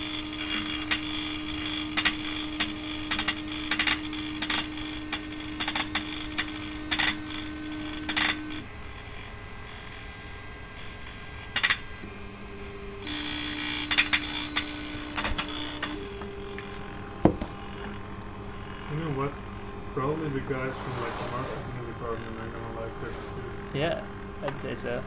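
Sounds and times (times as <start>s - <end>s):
motor whine: 0.0s - 25.0s
louder knock: 17.2s - 17.5s.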